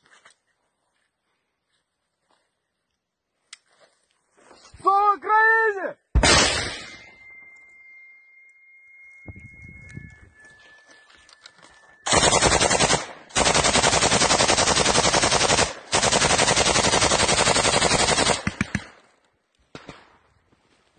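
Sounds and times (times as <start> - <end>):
single gunshots: 6.1 - 7.1
machine gun automatic fire: 12.0 - 18.8.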